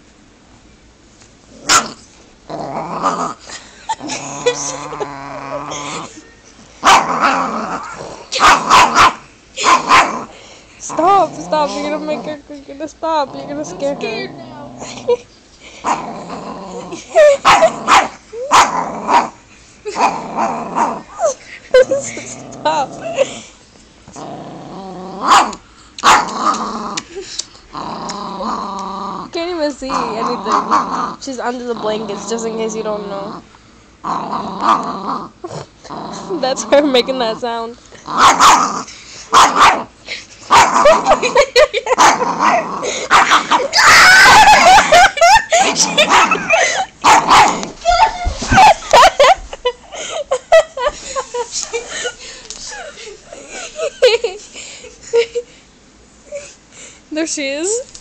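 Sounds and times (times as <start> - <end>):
dog barking and snarling: 1.6 - 3.4, 6.8 - 10.4, 15.8 - 21.2, 25.0 - 27.0, 29.9 - 31.2, 34.1 - 36.7, 38.0 - 49.3.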